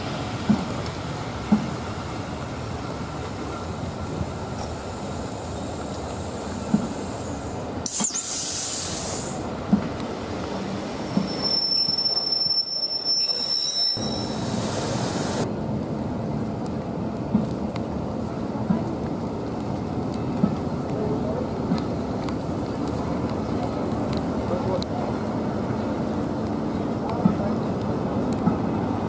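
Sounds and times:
train wheels clacking on rails: 0.0 - 2.0, 8.8 - 12.2, 27.0 - 29.0
train rumble: 0.0 - 29.0
brief hiss: 6.7 - 9.5, 14.0 - 15.4
wheels squealing: 10.9 - 14.7.

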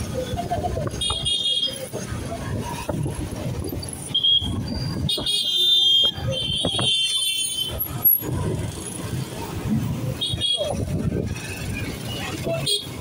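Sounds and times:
busy street traffic: 0.0 - 13.0.

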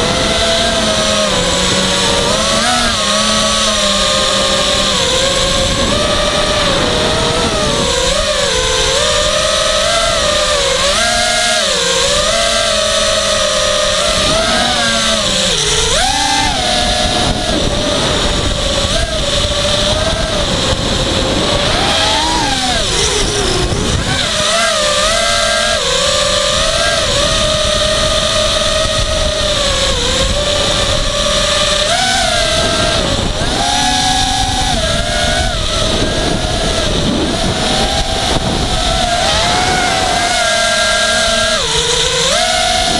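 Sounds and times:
drone motors whining: 0.0 - 42.9
air rushing: 16.5 - 24.4.

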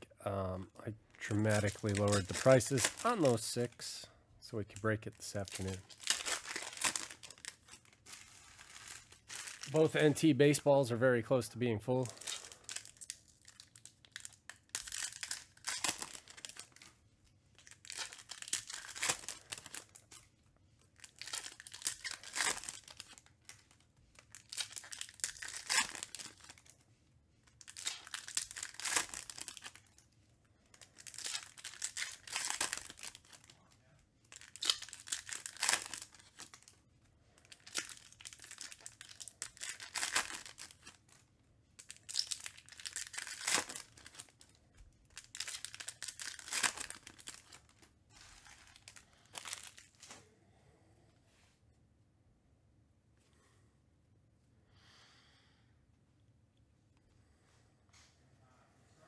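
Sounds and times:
foil wrappers tearing and crinkling: 1.2 - 3.8, 4.8 - 10.3, 12.0 - 16.9, 17.6 - 20.2, 21.0 - 26.7, 27.6 - 30.0, 30.7 - 33.5, 34.3 - 36.8, 37.4 - 41.2, 41.8 - 50.0.

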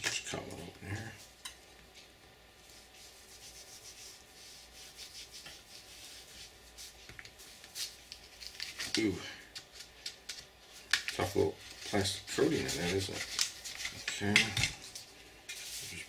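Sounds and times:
knife scraping plastic: 8.2 - 14.7.

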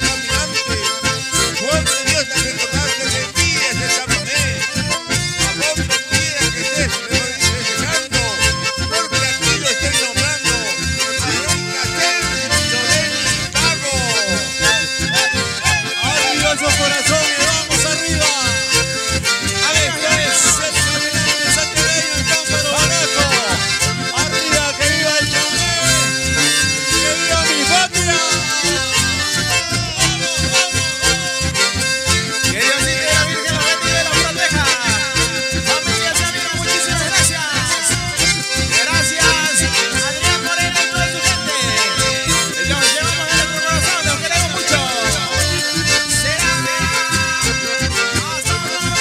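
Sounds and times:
live band with accordion: 0.0 - 49.0.

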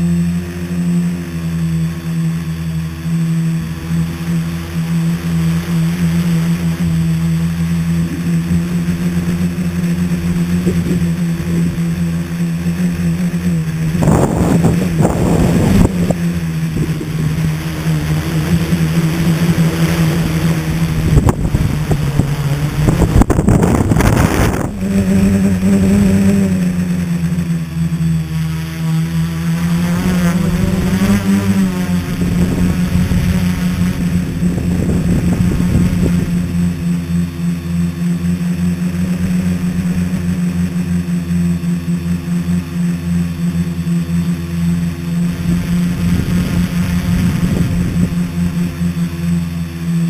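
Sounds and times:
drone motors humming: 0.0 - 50.0
wind noise on microphone: 8.0 - 26.7, 30.0 - 37.7, 45.0 - 49.8.

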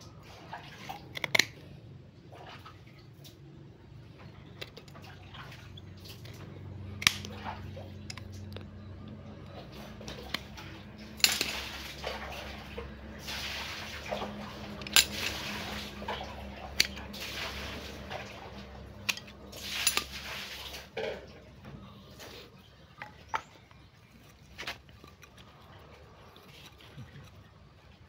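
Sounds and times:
cutters snapping wood: 0.9 - 1.6, 6.0 - 13.0, 13.9 - 20.2
bark and wood scraping and rustling: 4.1 - 28.0.

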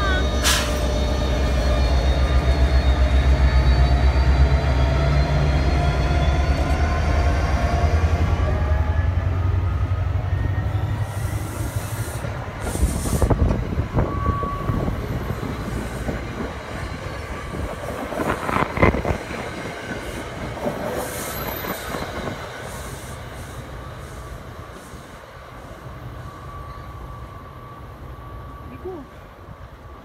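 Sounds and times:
train wheels rumbling: 0.0 - 28.6
diesel locomotive drone: 0.0 - 30.0
wheel squeal: 21.2 - 23.0.

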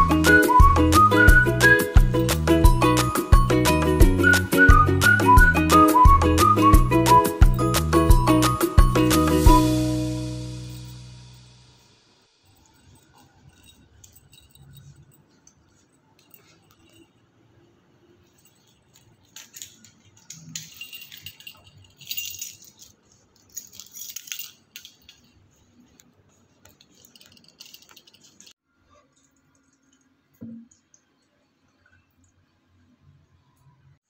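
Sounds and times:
metallic jingling and rattling: 10.6 - 28.6.

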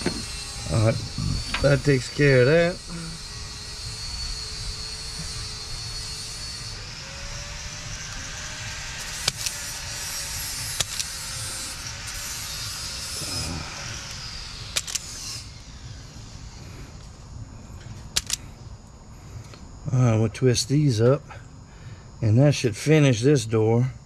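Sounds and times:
wire stripper snapping: 9.0 - 9.6, 10.6 - 11.2.

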